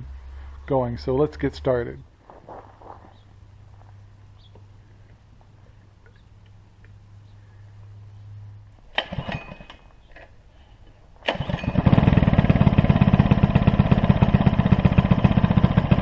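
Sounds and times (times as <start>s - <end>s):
tiller engine starting and running: 8.9s - 10.3s, 11.2s - 16.0s.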